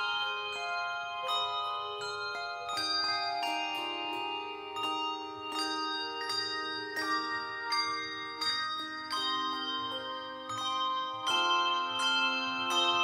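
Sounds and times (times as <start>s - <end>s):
handbell choir ringing chords: 0.0s - 13.0s.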